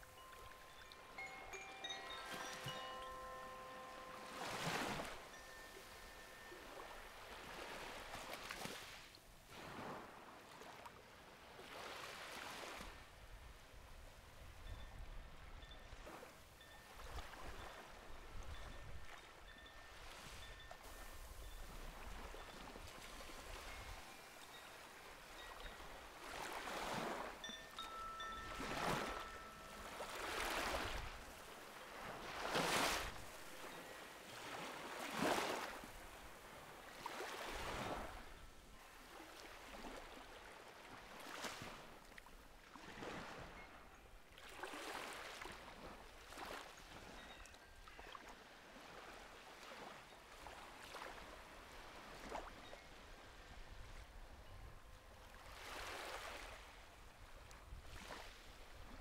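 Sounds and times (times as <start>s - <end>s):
chime ringing: 0.0s - 7.5s, 27.0s - 31.4s
waves washing onto sand: 28.4s - 38.3s.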